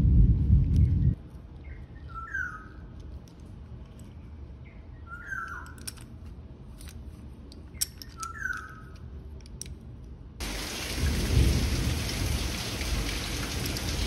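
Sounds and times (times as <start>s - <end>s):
rain hissing: 10.4s - 14.0s.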